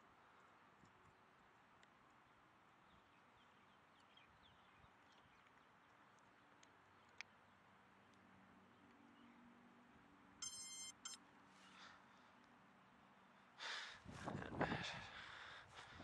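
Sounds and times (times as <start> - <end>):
electronic beep: 10.4 - 11.2.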